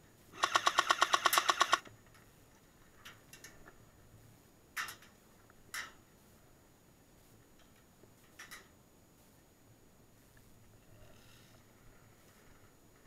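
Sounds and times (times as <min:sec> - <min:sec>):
airsoft gun full-auto burst: 0:00.4 - 0:01.8.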